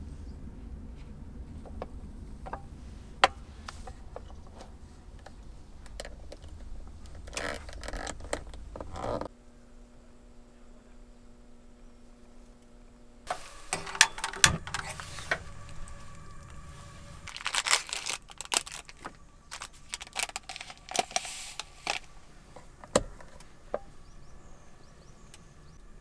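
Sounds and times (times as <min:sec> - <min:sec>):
handling knocks clicks and rustling: 0:13.7 - 0:16.3.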